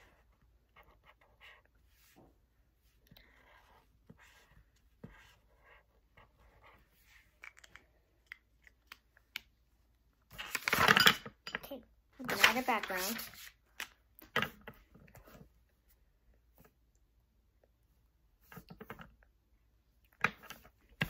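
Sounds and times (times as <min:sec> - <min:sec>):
pen scratching on paper: 0:03.3 - 0:06.9.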